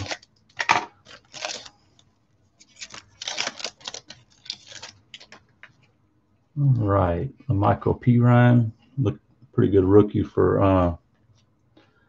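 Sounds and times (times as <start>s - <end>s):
foil pack crinkling: 0.0s - 5.8s.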